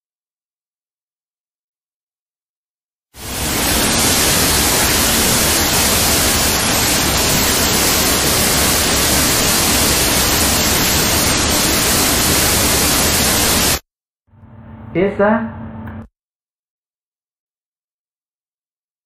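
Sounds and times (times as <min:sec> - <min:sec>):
waterfall rushing: 0:03.2 - 0:13.8.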